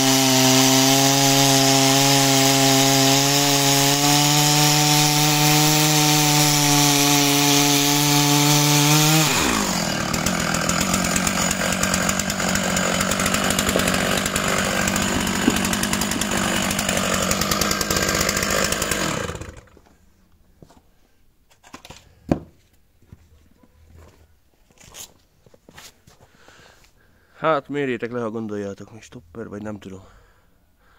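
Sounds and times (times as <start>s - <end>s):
chainsaw cutting wood: 0.0s - 20.0s.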